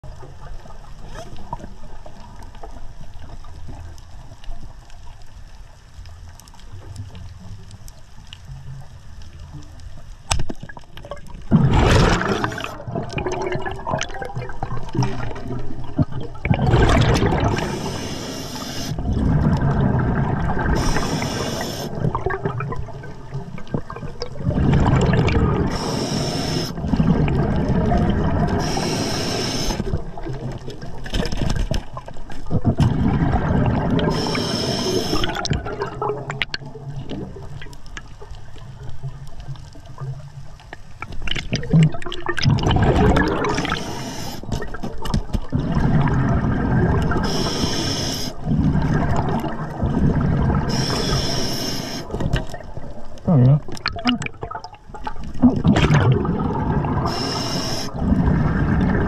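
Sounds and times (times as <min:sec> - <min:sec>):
exhaled bubbles rushing: 0:10.6 - 0:39.2, 0:41.1 - 0:59.0
regulator inhalation hiss: 0:17.5 - 0:19.0, 0:20.7 - 0:22.0, 0:25.7 - 0:26.8, 0:28.6 - 0:29.9, 0:34.1 - 0:35.3, 0:43.6 - 0:44.6, 0:47.2 - 0:48.4, 0:50.7 - 0:52.2, 0:57.0 - 0:58.0.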